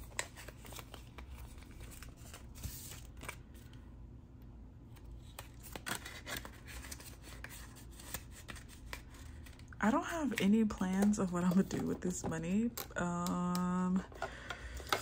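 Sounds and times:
banknotes rustling: 0:00.0 - 0:03.7.

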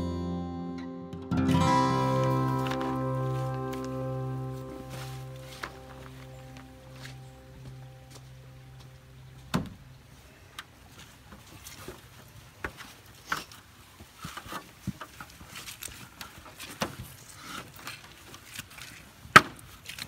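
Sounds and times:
plastic sheeting rustling: 0:02.0 - 0:07.6.

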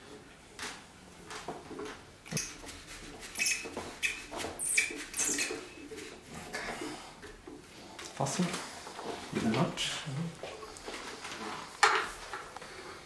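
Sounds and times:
wheel scraping and squeaking on shaft: 0:02.3 - 0:07.2.

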